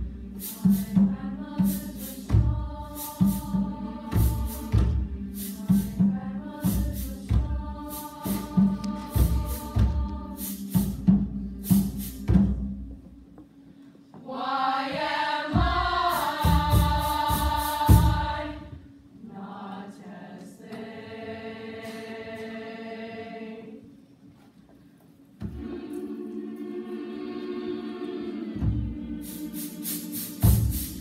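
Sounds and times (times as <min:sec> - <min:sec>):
choir singing: 0:00.0 - 0:12.9, 0:14.2 - 0:24.0, 0:25.4 - 0:31.0
sharp percussive beats: 0:00.4 - 0:13.2, 0:14.9 - 0:18.8, 0:28.6 - 0:31.0.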